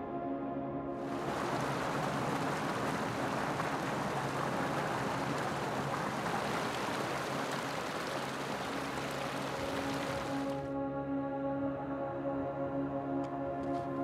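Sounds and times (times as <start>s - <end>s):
stream water rushing over rocks: 1.1s - 10.7s.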